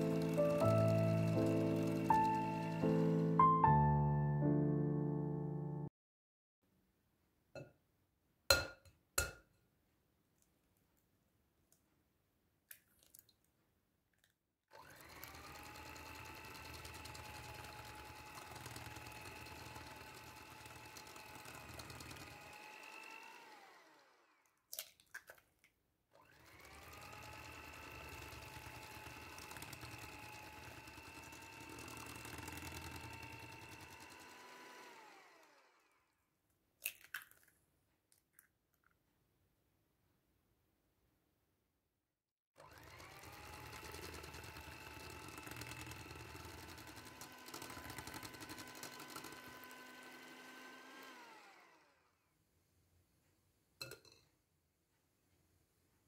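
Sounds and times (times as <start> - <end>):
electric hand mixer whining: 0.0 - 3.6, 14.8 - 24.6, 26.2 - 36.2, 42.6 - 52.1
egg tapped on glass bowl: 8.5 - 9.5.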